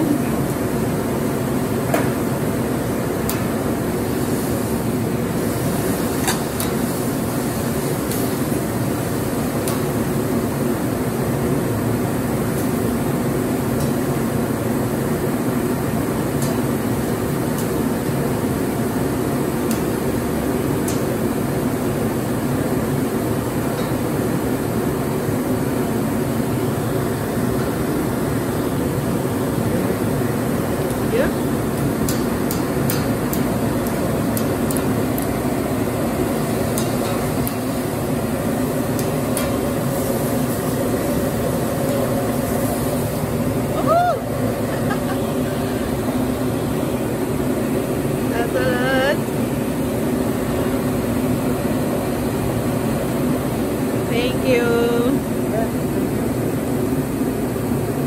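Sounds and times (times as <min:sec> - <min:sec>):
wooden sticks clicking on griddle: 0:36.7 - 0:37.6.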